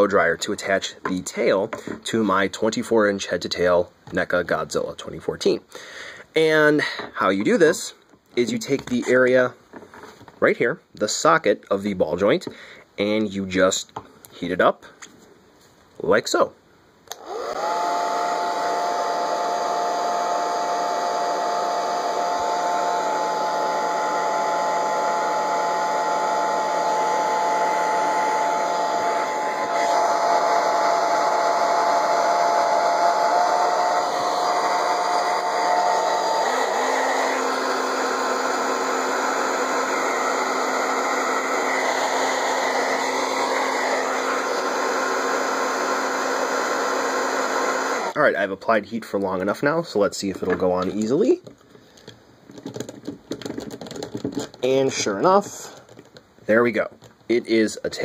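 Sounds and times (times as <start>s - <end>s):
hair dryer motor whine: 17.1s - 48.2s.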